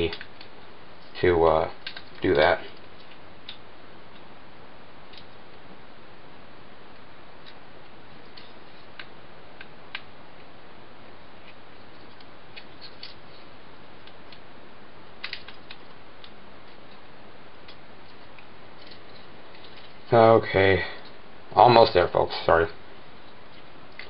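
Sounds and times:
steady hiss: 0.0 - 24.0
plastic toy parts clicking: 15.2 - 16.4.

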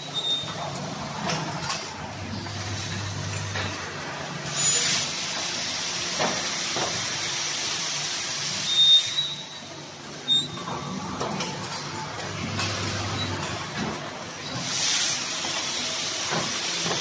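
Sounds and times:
machinery running: 0.0 - 17.0.

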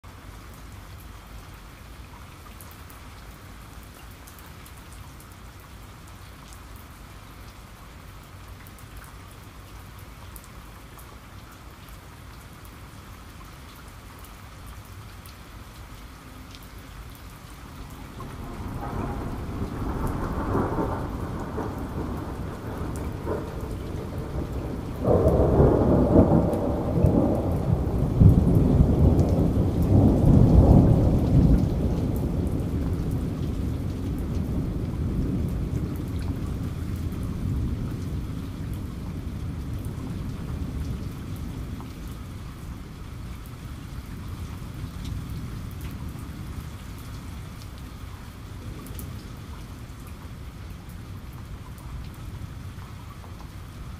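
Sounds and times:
steady rain: 0.0 - 53.9
thunder rolling: 17.8 - 41.7.

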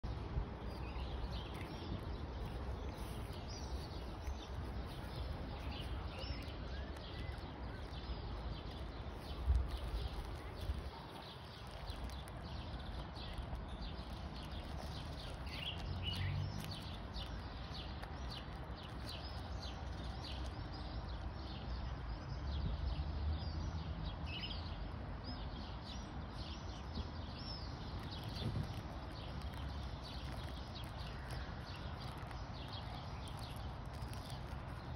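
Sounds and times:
birds chirping: 0.0 - 23.0, 24.3 - 34.9
dog chewing wrapper: 1.4 - 20.6, 28.0 - 34.9.

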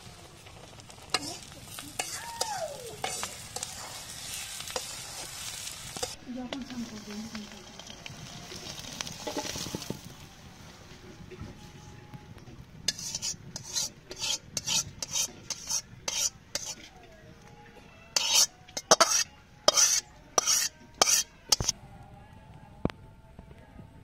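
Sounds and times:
metal spoon scraping a steel bowl: 3.0 - 6.2, 12.9 - 16.9, 18.1 - 21.8.

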